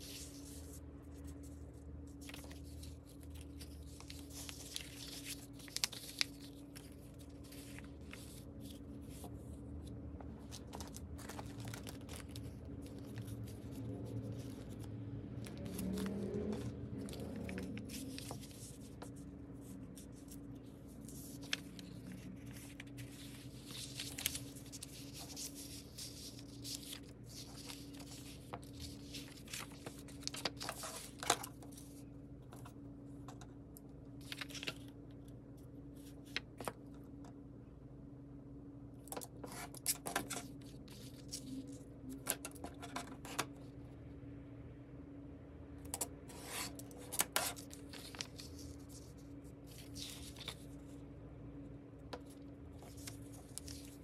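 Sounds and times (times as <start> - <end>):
paper rustling and crinkling: 0.0 - 37.1, 39.0 - 43.8, 46.0 - 51.0, 52.0 - 54.0
steady low hum: 0.0 - 54.0
craft knife scraping paper: 46.3 - 49.2.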